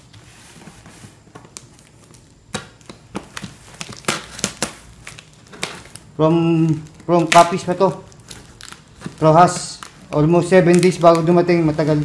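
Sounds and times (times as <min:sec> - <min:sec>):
plastic and tape crackling: 0:00.0 - 0:12.0.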